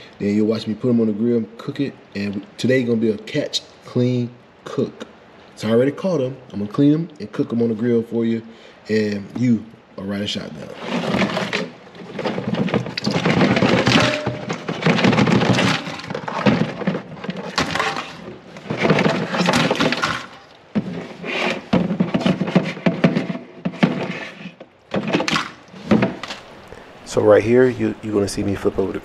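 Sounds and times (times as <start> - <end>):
crab shells clattering in sink: 10.8 - 24.3, 24.9 - 26.8.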